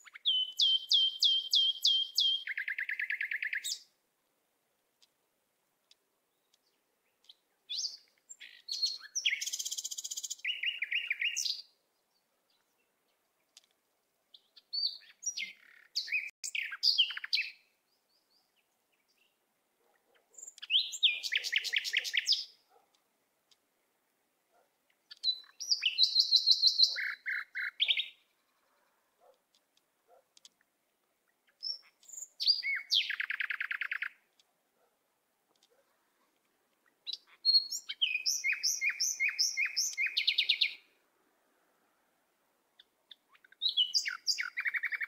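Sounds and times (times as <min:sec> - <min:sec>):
bird chirps and trills: 0:00.0 - 0:03.8, 0:06.4 - 0:11.7, 0:14.3 - 0:19.4, 0:20.2 - 0:22.6, 0:24.9 - 0:28.9, 0:31.4 - 0:34.2, 0:36.8 - 0:40.8, 0:42.8 - 0:45.0.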